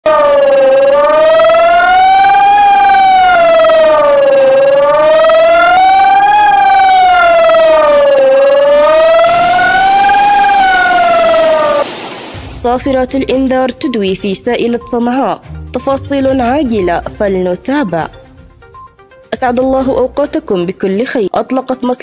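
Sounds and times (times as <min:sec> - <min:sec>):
warning siren wailing: 0:00.0 - 0:12.7.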